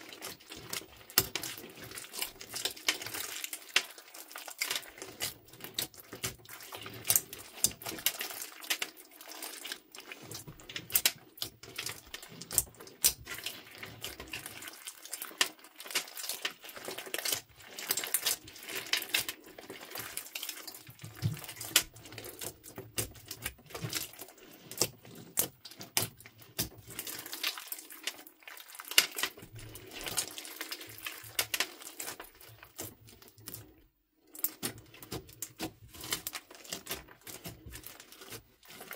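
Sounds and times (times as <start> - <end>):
hands squelching sticky slime: 0.0 - 38.9.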